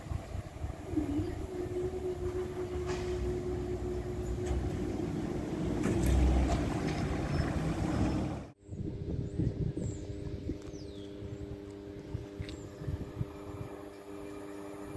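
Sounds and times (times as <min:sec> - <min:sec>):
car crossing tracks: 0:00.0 - 0:08.6
level crossing barriers humming: 0:00.0 - 0:08.6.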